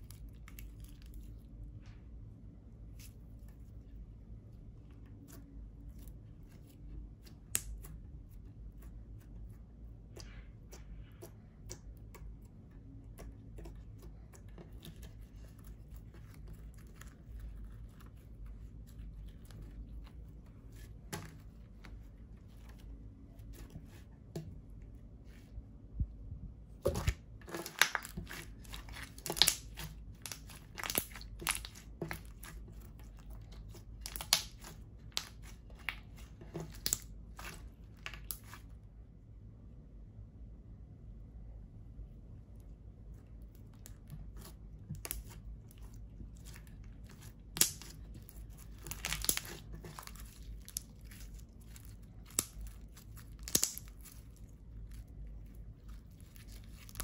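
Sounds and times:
slime sticky clicks and pops: 0:53.4 - 0:53.9.

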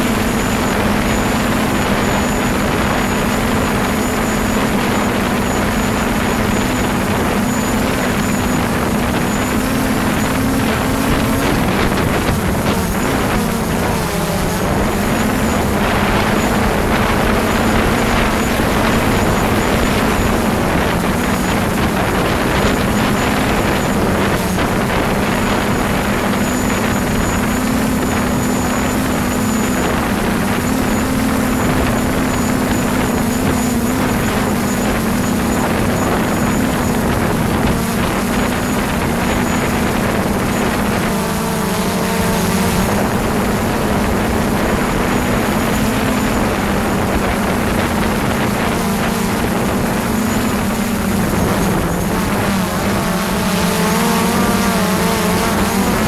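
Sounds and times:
drone propellers buzzing: 0:00.0 - 0:56.0
faint high whine: 0:00.0 - 0:56.0.

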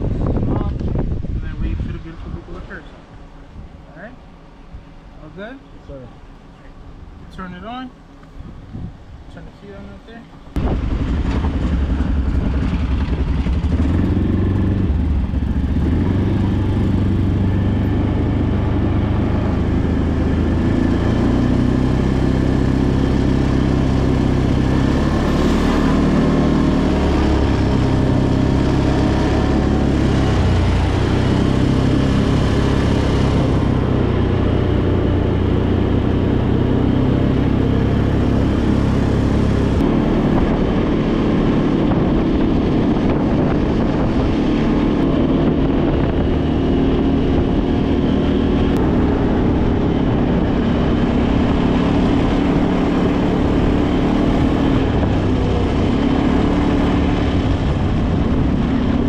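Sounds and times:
quad bike engine running: 0:10.6 - 0:59.0.

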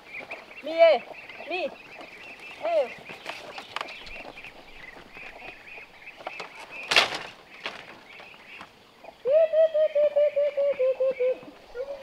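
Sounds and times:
bamboo gate knocking shut: 0:06.4 - 0:07.9.

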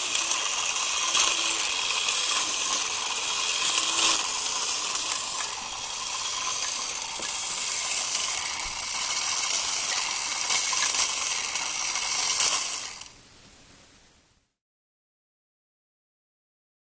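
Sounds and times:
clockwork toy whirring rattle: 0:00.0 - 0:13.2.

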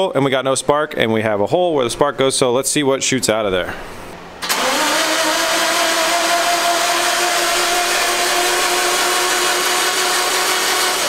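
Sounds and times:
starter motor cranking engine: 0:04.4 - 0:11.0.

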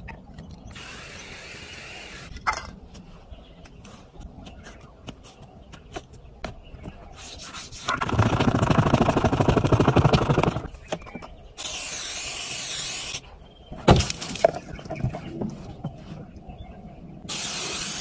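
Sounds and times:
aerosol spray can hissing: 0:11.6 - 0:13.2, 0:17.3 - 0:18.0.

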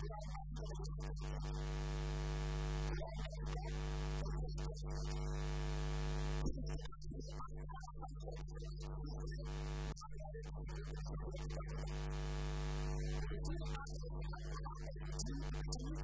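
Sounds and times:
man's amplified voice: 0:00.0 - 0:01.6
electrical mains hum: 0:00.6 - 0:06.6, 0:09.3 - 0:10.0, 0:10.8 - 0:13.8.

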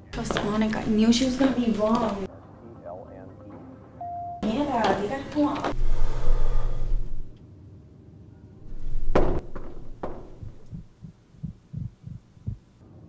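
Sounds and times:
low hum: 0:05.8 - 0:07.4, 0:08.3 - 0:12.6
soft low thumps: 0:09.0 - 0:12.7.

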